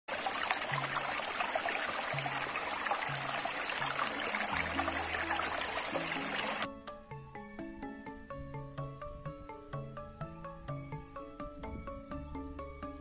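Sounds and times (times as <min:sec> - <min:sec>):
stream splashing over rocks: 0:00.1 - 0:06.7.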